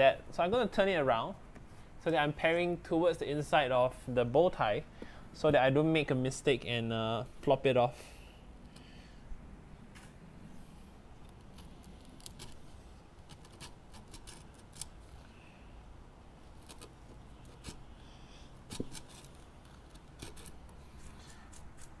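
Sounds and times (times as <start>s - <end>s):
chisel slicing wood: 18.7s - 22.0s.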